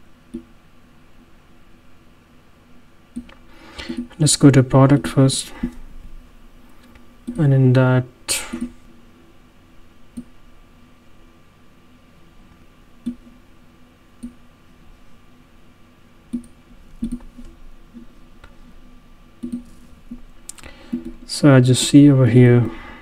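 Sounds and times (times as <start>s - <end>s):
faint steady hum: 0.0s - 23.0s
computer mouse clicking: 3.1s - 4.1s, 8.5s - 8.7s, 10.1s - 10.3s, 13.0s - 13.4s, 16.3s - 18.1s, 19.4s - 21.2s.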